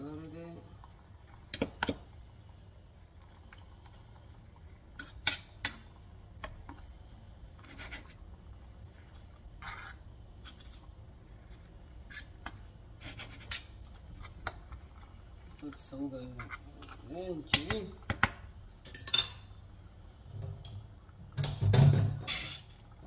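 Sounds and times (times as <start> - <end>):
metal fork scraping a frying pan: 22.2 - 22.7.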